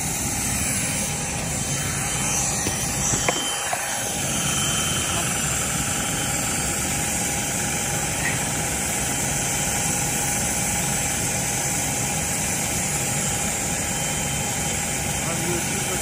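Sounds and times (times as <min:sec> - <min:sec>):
engine drone: 0:00.0 - 0:16.0.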